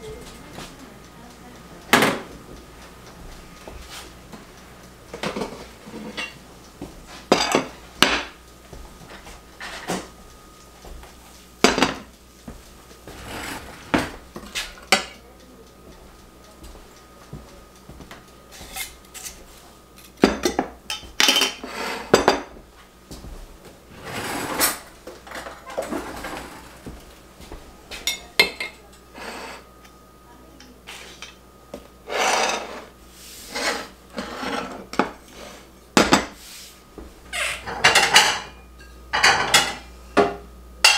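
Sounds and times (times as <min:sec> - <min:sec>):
metal spoon scraping skillet: 0:32.0 - 0:35.4.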